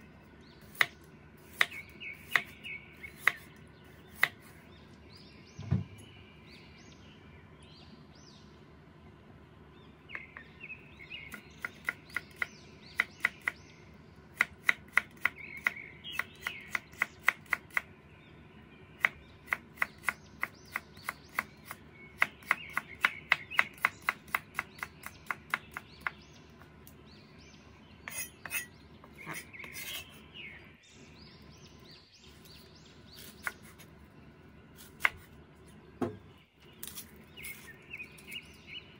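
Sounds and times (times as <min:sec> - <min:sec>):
cleaver chopping on wooden board: 0:14.4 - 0:17.9, 0:19.0 - 0:26.2, 0:36.0 - 0:36.2.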